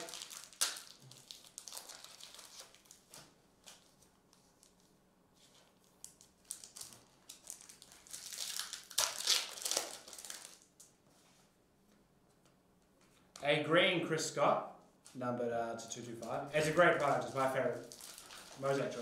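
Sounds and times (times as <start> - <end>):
foil wrapper crinkling and tearing: 0.0 - 10.9, 16.6 - 19.0.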